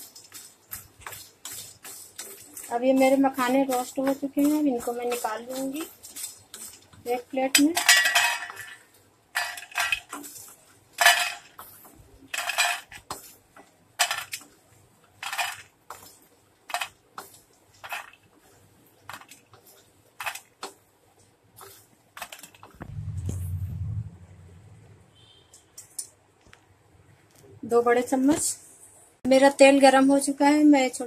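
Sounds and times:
wooden spatula scraping metal pan: 1.0 - 11.3.

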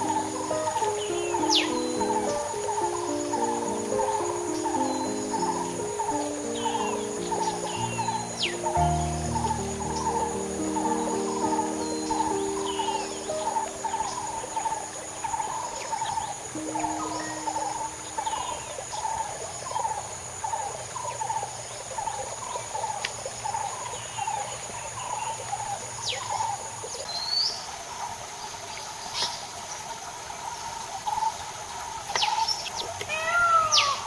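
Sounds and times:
high-pitched insect drone: 0.0 - 22.6
bird chirps: 0.0 - 27.6.

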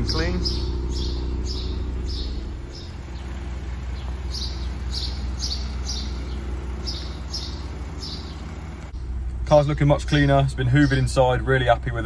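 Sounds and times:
small birds chirping: 0.0 - 9.2, 10.2 - 11.8
steady low rumble: 0.0 - 12.0.

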